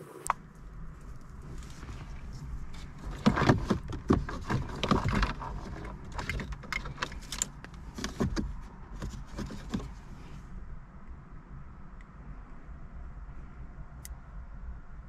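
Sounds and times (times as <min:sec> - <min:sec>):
plastic connectors clicking and scraping: 0:02.8 - 0:10.0.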